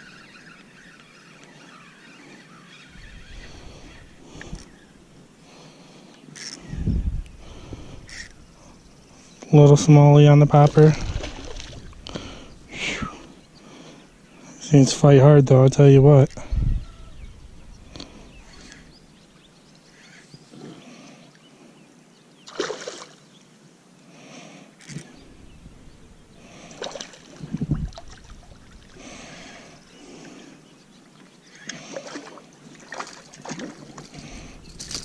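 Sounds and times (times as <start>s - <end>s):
fish splashing in water: 22.5s - 23.2s.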